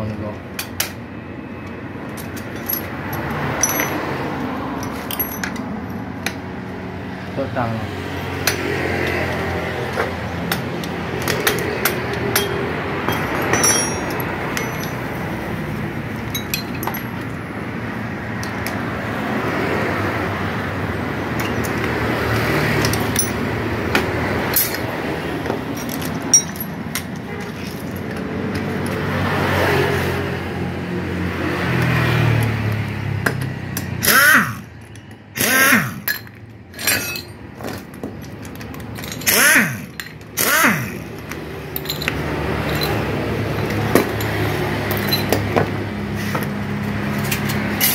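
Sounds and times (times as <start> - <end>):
workshop noise: 0.0 - 47.9
metal tools clinking: 2.0 - 6.4, 9.9 - 15.5, 16.1 - 17.4, 21.4 - 21.9, 22.7 - 23.5, 24.5 - 29.0, 33.8 - 45.6, 47.1 - 47.9
air impact wrench bursts: 33.9 - 34.8, 35.4 - 36.2, 39.1 - 41.2.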